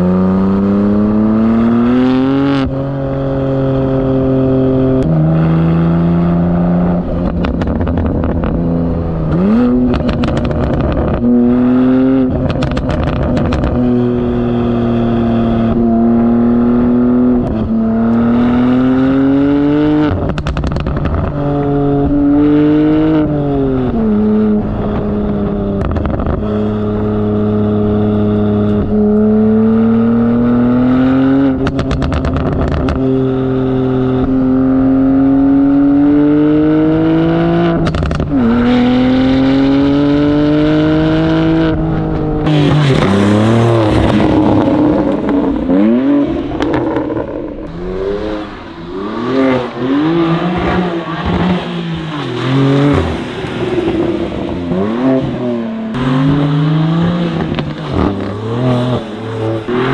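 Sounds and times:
car engine revving: 0.0 - 59.9
exhaust crackling: 5.0 - 18.5, 39.7 - 59.9.

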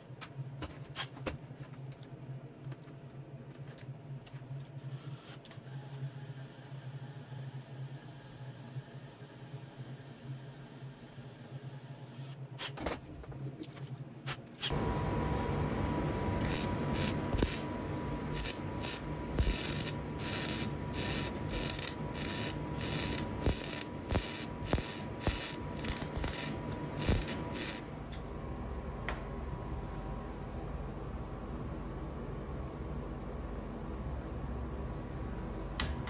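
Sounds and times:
welding torch crackling and hissing: 14.7 - 27.9
steady hum: 14.7 - 36.0.

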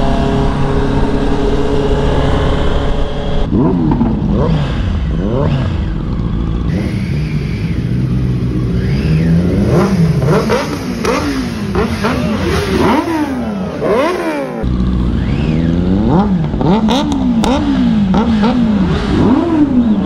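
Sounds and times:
motorcycle engines revving: 0.0 - 20.0.

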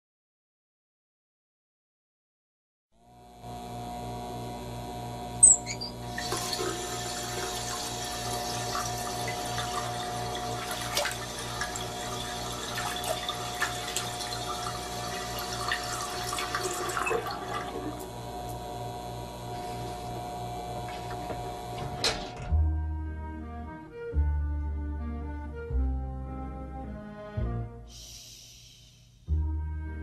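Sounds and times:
steady low hum: 3.2 - 6.2, 17.4 - 22.1
hot water gushing and bubbling: 5.4 - 18.3.

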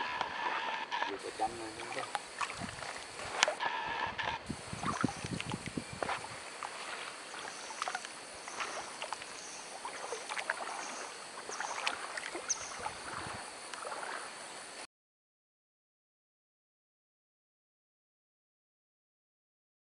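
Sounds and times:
lake water lapping: 0.0 - 14.8
steady high-pitched hum: 0.0 - 14.9
small clicks and trickles: 1.0 - 3.6, 4.8 - 14.2.

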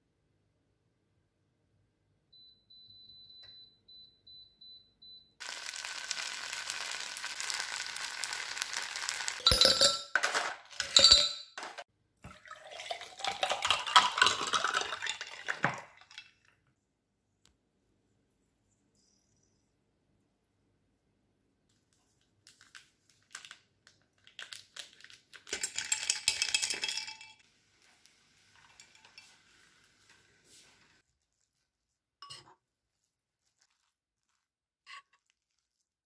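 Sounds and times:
pot sizzling hiss: 5.4 - 9.5, 27.4 - 31.0
dishes clinking: 9.4 - 11.8.

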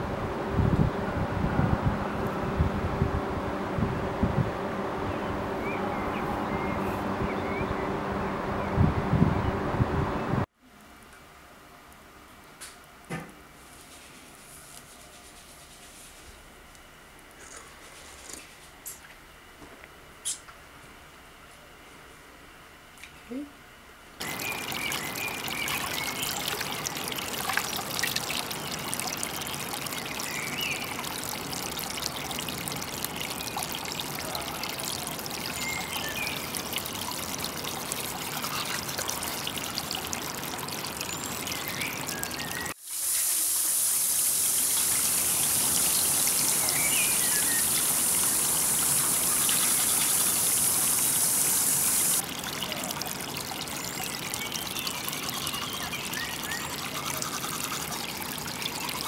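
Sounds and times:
stream trickling over rocks: 24.2 - 59.0
loud high hiss: 42.7 - 52.2.

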